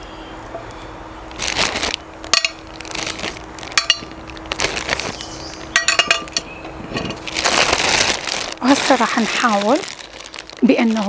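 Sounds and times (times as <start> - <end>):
plastic bag rustling: 1.3 - 11.0
metal tongs clinking: 3.8 - 4.1, 5.8 - 7.2.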